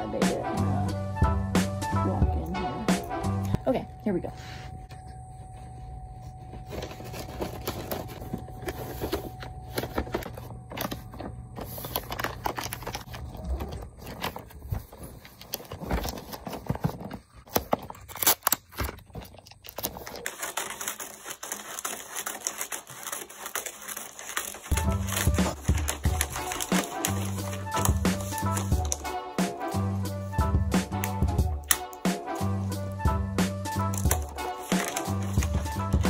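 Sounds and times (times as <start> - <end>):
wrapping paper crinkling: 6.6 - 29.2, 33.8 - 36.0.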